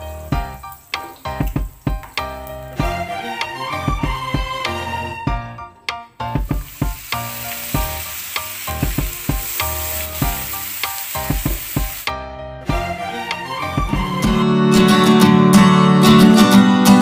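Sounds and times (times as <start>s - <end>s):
chicken sizzling in oil: 0.0s - 4.6s, 6.3s - 12.1s
background music: 0.0s - 17.0s
oil popping: 6.4s - 12.1s.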